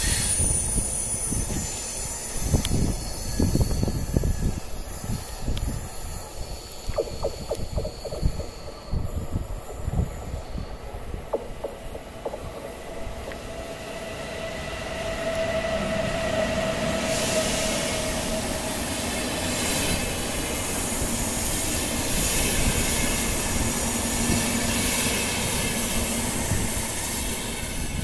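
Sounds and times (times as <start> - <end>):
train wheels on rails: 0.0 - 28.0.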